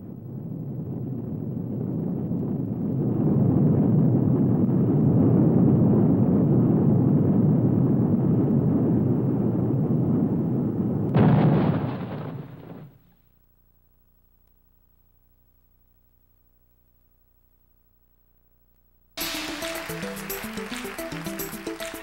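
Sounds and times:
explosion: 11.1 - 13.0.

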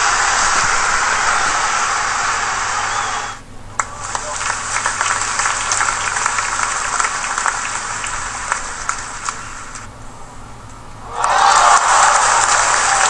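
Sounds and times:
indistinct crowd voices: 0.0 - 9.9, 11.0 - 13.0
scattered claps: 3.8 - 9.9, 11.2 - 13.0.

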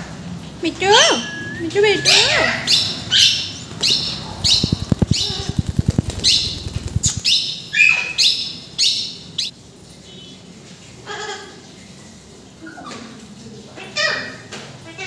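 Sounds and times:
parakeets screeching: 0.9 - 9.5
wings flapping: 1.4 - 7.6.

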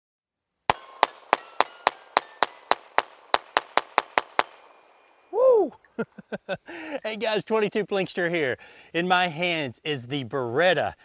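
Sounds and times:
pistol shots rapid fire: 0.7 - 4.8
steel targets ringing: 0.7 - 5.3.

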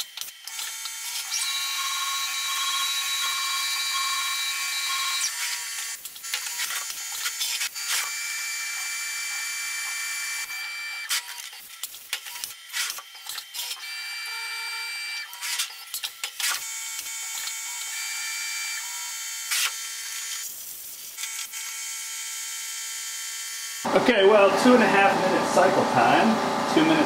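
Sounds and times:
mill whine: 23.9 - 27.0.

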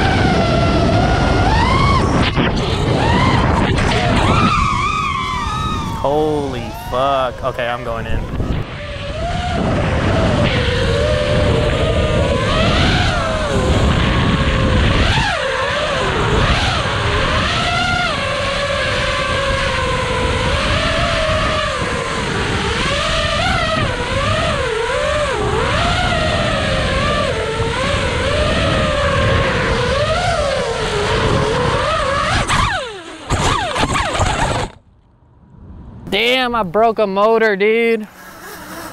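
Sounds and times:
rushing air noise: 0.0 - 15.4
drone motors whining: 0.0 - 35.2, 38.0 - 38.9.

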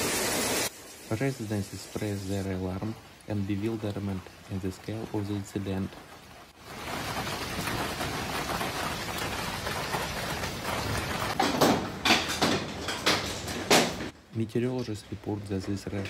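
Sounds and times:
hail and rain hiss: 0.0 - 11.5
hailstones knocking hard surface: 1.7 - 14.2.

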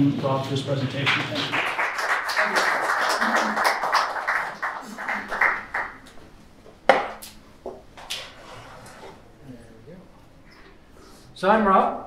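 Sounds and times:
audience applause: 1.1 - 6.1
sharp knocks: 6.9 - 7.8.

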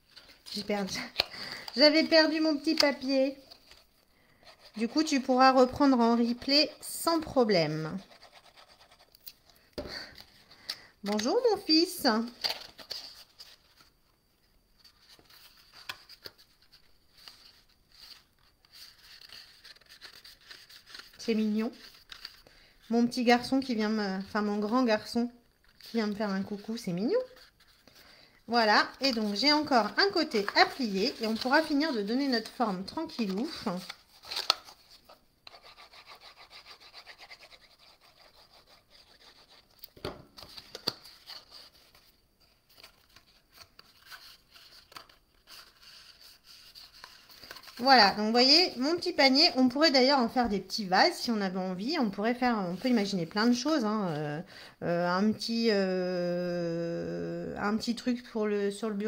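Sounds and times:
cardstock rustling: 14.8 - 22.4, 28.7 - 48.7.

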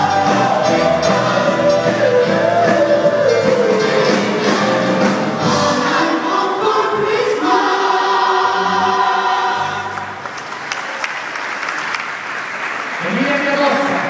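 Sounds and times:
gospel choir singing: 0.0 - 10.6
crowd clapping: 9.9 - 14.0.

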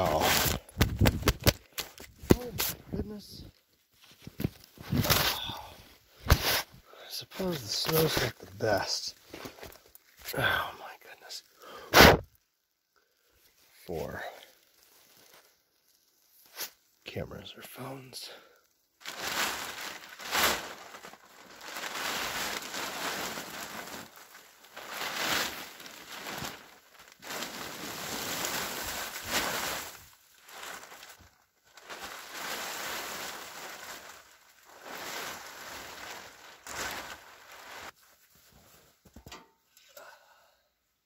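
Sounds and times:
tarp rustling and crinkling: 0.0 - 12.4, 13.0 - 39.4
snow sliding off tarp: 21.6 - 31.1, 31.9 - 38.0.

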